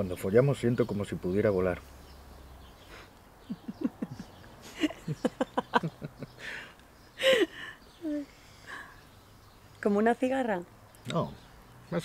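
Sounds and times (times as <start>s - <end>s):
man and woman laughing softly: 2.9s - 7.8s.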